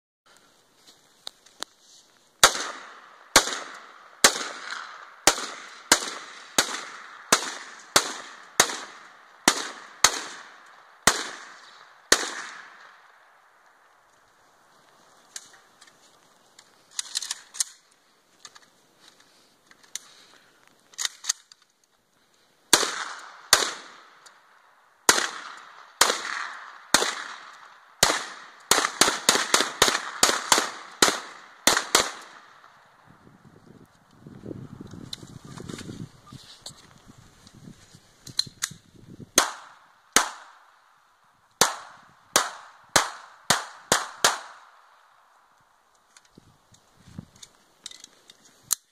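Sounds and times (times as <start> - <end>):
rifle shots: 2.4 - 13.2, 22.7 - 24.2, 25.1 - 32.8, 39.4 - 40.6, 41.6 - 44.8.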